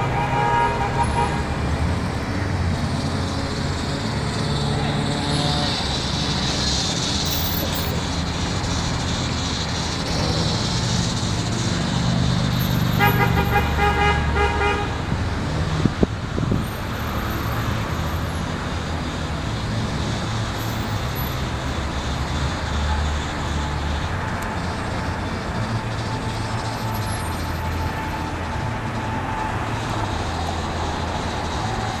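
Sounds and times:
vehicle horn: 0.0s - 1.6s, 12.9s - 15.1s
road traffic: 0.0s - 32.0s.

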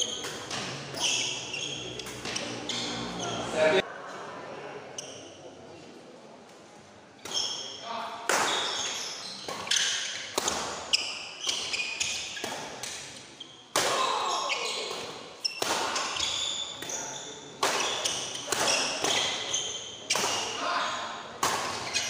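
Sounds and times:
shoes squeaking on court: 0.0s - 3.5s, 7.2s - 7.8s, 8.4s - 13.7s, 14.3s - 20.6s, 21.6s - 22.0s
rackets hitting shuttlecock: 17.6s - 20.6s, 21.4s - 22.0s.

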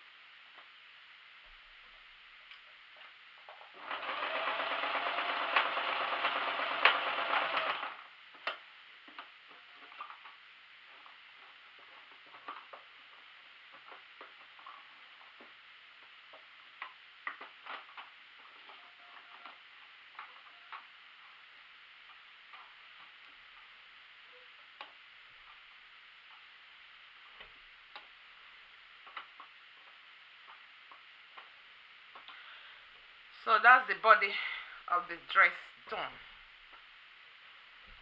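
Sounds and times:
steady hiss: 0.0s - 3.7s, 7.8s - 38.0s
sewing machine clicks: 3.8s - 8.0s.

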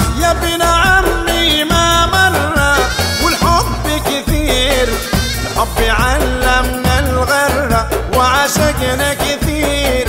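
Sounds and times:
instrumental folk music: 0.0s - 10.0s.

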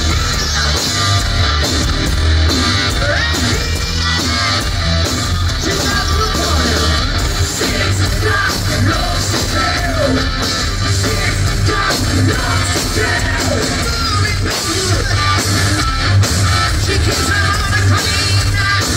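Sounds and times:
bass guitar: 0.0s - 18.9s
distorted electric guitars: 0.0s - 18.9s
drums: 0.0s - 18.9s
person singing: 16.6s - 18.9s.

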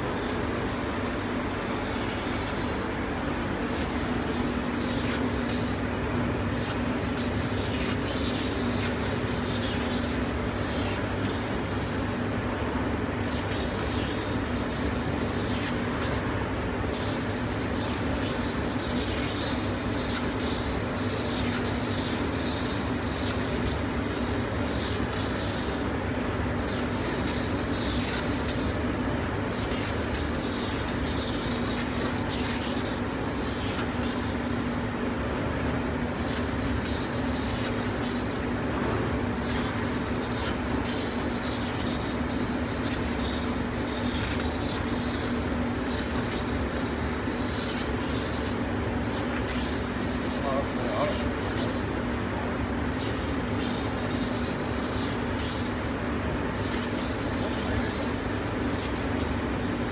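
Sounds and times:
laser cutting machine hum: 0.0s - 59.9s.

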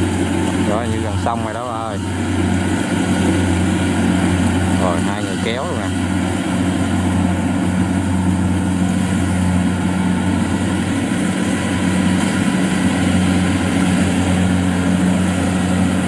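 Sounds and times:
diesel engine hum: 0.0s - 16.0s.

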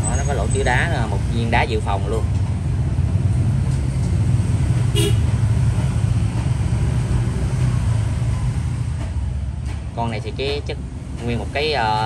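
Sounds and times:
street traffic rumble: 0.0s - 12.0s
car horn beep: 4.9s - 5.3s.

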